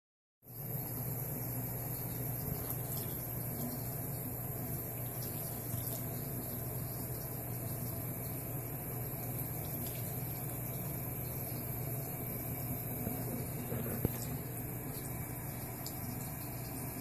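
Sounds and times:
tap running into sink: 13.0s - 15.1s.

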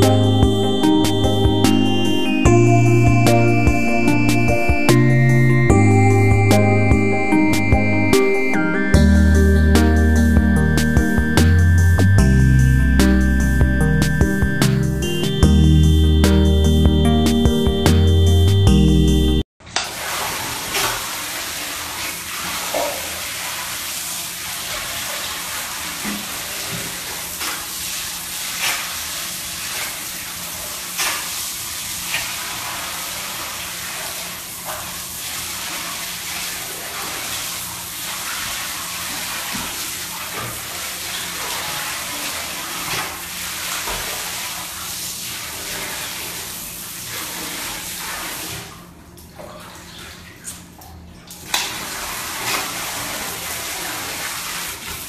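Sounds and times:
tap water running into bathtub: 19.7s - 55.0s.

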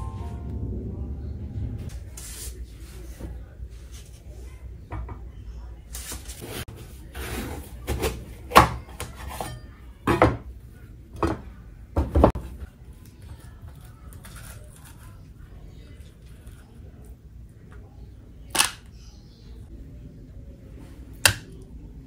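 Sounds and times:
metal spoon scraping melon seeds: 14.1s - 15.4s.

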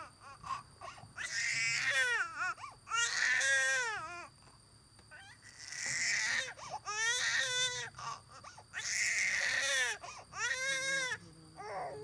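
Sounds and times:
newborn baby crying: 8.8s - 12.0s.

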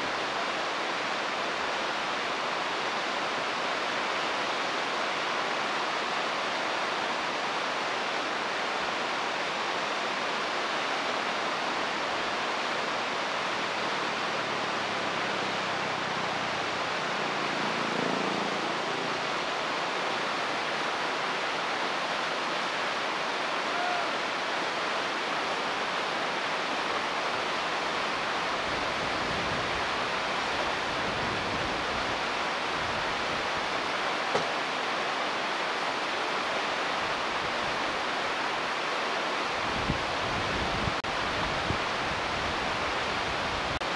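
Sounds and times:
river water rushing: 0.0s - 43.9s.

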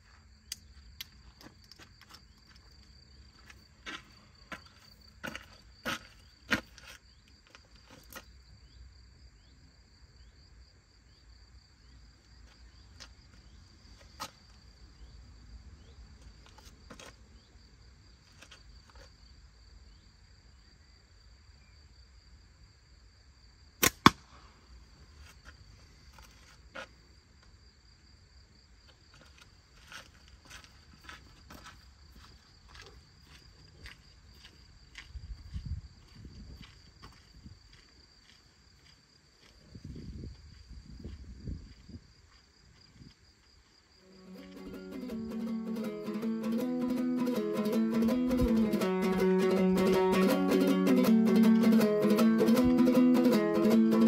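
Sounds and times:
footsteps on paved road: 0.8s - 8.4s, 16.2s - 17.2s, 29.1s - 44.6s.

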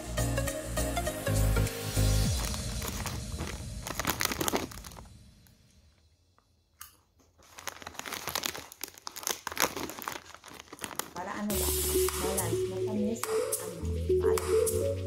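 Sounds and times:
foil snack bag crumpling: 2.2s - 5.7s, 7.2s - 11.8s.

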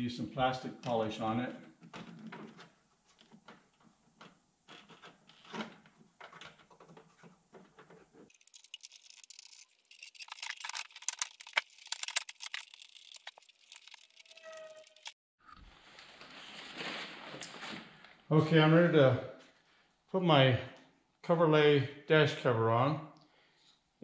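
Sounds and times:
high-pitched crackling rustle: 4.6s - 18.0s
short squeak: 14.2s - 15.2s.

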